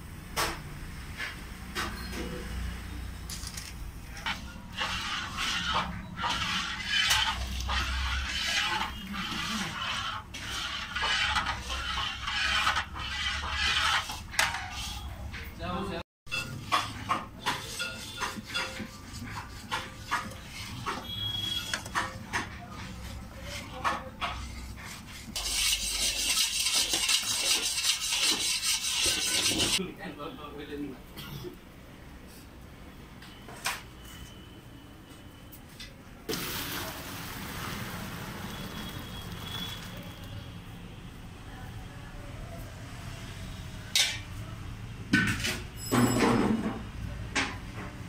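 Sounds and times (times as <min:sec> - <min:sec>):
metal rod scraping a pan: 0:04.2 - 0:15.4, 0:16.3 - 0:29.8
milk pouring and splashing: 0:36.3 - 0:38.8.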